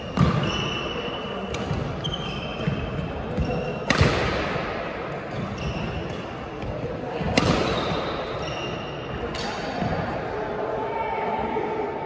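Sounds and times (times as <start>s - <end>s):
shoes squeaking on floor: 0.4s - 1.1s, 2.0s - 3.8s, 5.3s - 6.4s, 7.8s - 9.1s
racket striking shuttlecock: 3.4s - 4.6s, 7.2s - 8.1s.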